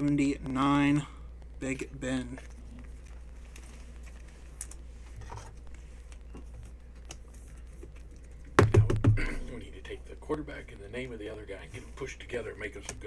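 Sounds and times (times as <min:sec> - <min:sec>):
man talking: 0:08.7 - 0:13.0.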